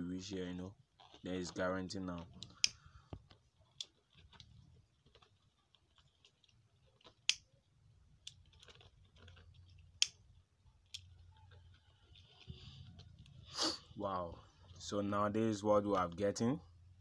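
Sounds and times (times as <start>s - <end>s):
plastic mat clicks and crackles: 1.0s - 13.4s.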